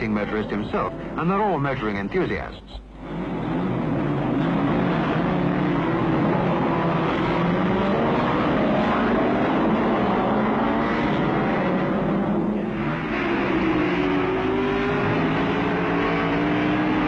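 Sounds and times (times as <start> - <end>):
racing car engines revving: 0.0 - 17.0.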